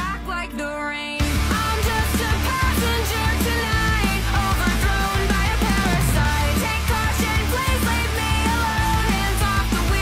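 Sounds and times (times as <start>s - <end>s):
rock guitar: 1.2s - 10.0s
steady low bass: 1.2s - 10.0s.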